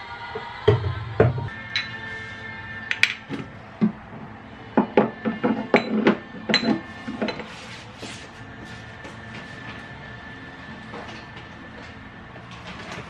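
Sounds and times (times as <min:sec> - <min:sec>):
plastic bottles knocking: 0:04.8 - 0:07.5.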